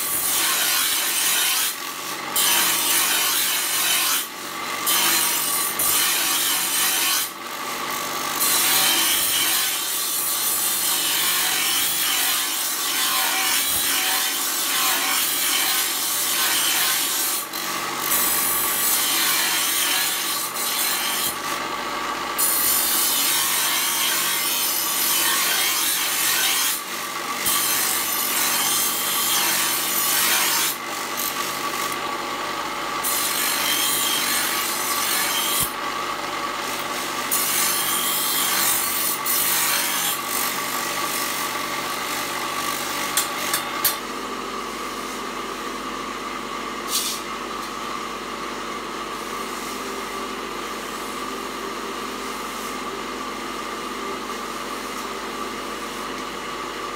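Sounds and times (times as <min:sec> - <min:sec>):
grinder rasping on steel blade: 0:00.0 - 0:32.2, 0:32.9 - 0:44.1, 0:46.8 - 0:47.9.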